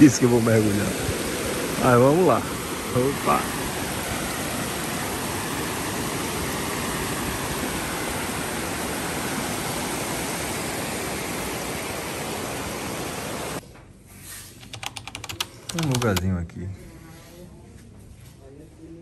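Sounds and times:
waterfall rushing: 0:00.0 - 0:13.6
sharp clicks: 0:14.6 - 0:16.3.

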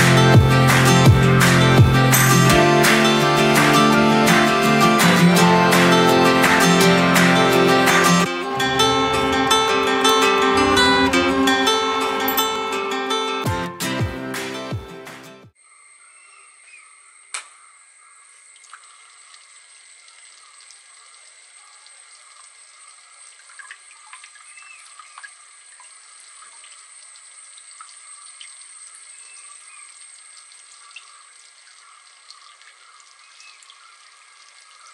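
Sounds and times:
sharp click: 0:17.3 - 0:17.6.

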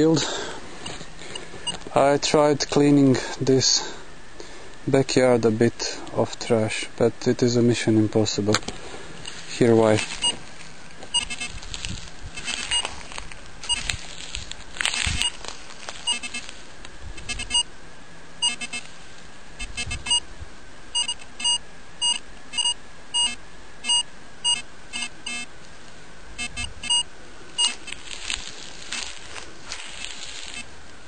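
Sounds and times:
metal detector beeps: 0:10.0 - 0:10.4, 0:11.1 - 0:11.6, 0:12.4 - 0:12.9, 0:13.6 - 0:13.9, 0:15.0 - 0:15.4, 0:16.1 - 0:16.5, 0:17.2 - 0:17.7, 0:18.4 - 0:18.9, 0:19.6 - 0:20.2, 0:21.0 - 0:25.5, 0:26.4 - 0:28.0.

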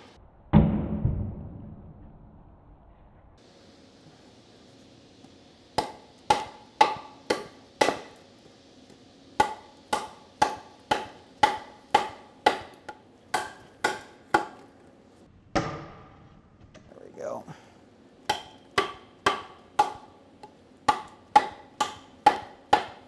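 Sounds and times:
knife chopping wood: 0:05.8 - 0:08.2, 0:09.4 - 0:14.7, 0:18.3 - 0:23.0.

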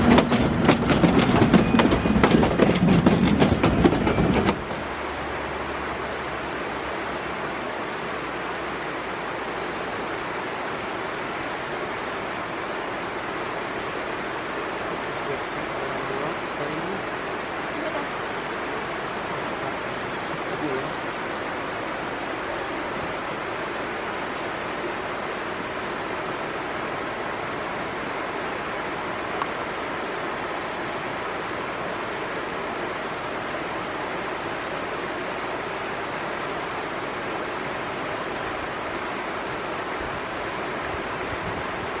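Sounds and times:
stream rushing over rocks: 0:00.0 - 0:42.0.

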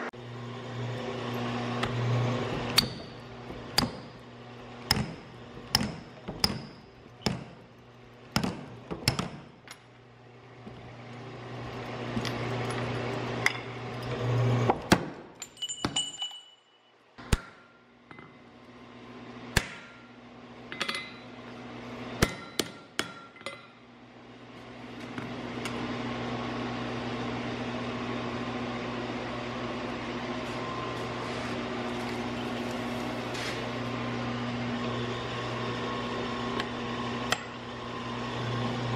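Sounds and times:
machine hum: 0:00.0 - 0:14.9
hammer striking hot steel: 0:02.7 - 0:04.2, 0:04.8 - 0:07.6, 0:19.6 - 0:20.1, 0:22.2 - 0:23.7
metallic clink: 0:15.4 - 0:17.0.

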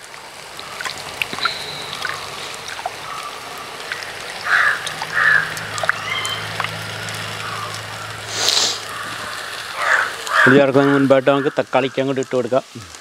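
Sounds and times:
water dribbling: 0:00.0 - 0:13.0
wet squelching: 0:00.4 - 0:10.6.

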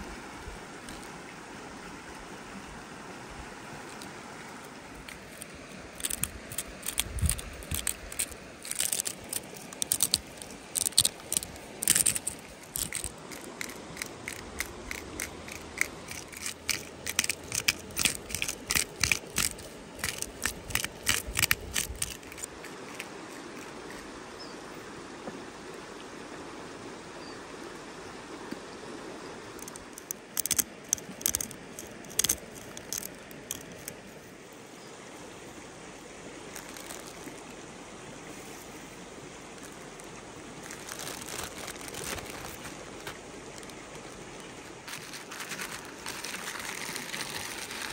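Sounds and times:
stream rushing: 0:00.0 - 0:47.9
spice grinder clicking: 0:29.6 - 0:33.9.

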